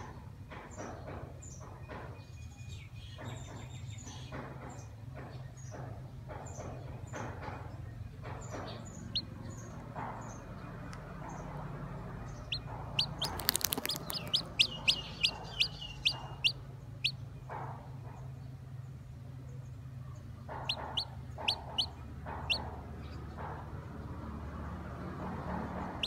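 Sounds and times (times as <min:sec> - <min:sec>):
chick peeping: 0:08.2 - 0:10.4, 0:12.3 - 0:18.3, 0:20.1 - 0:23.7
sharp clicks: 0:13.0 - 0:15.7.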